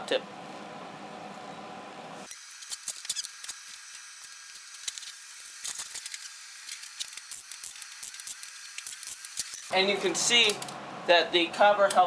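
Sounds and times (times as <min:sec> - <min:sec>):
gloved hands clicking and rustling: 0:02.6 - 0:09.7.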